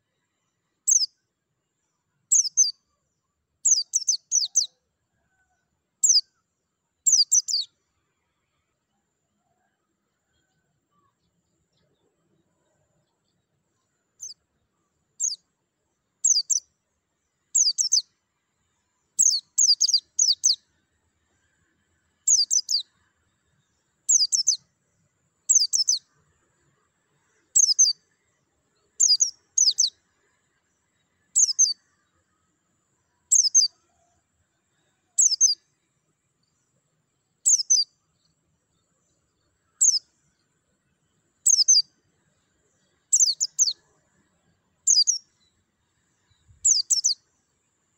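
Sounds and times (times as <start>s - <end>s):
bird twittering: 31.4s - 31.8s, 35.2s - 35.6s, 37.5s - 37.9s, 39.8s - 40.0s, 41.4s - 41.8s, 43.1s - 43.8s, 44.9s - 45.2s, 46.6s - 47.2s.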